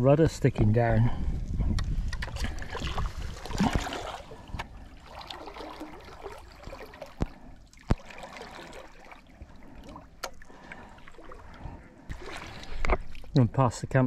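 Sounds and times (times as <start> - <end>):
paddle splashing water: 2.2 - 13.6.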